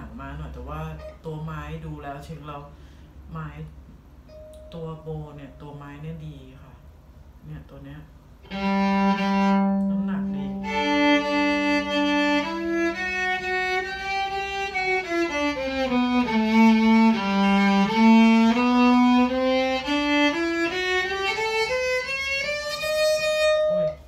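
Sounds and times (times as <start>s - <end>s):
electric violin slow melody: 8.4s - 24.0s.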